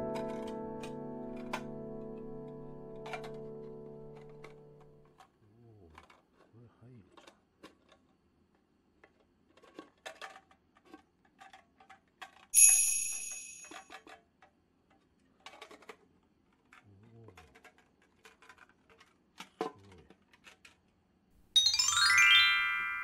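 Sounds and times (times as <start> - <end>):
bright metallic ring: 12.6 - 13.9, 21.6 - 23.0.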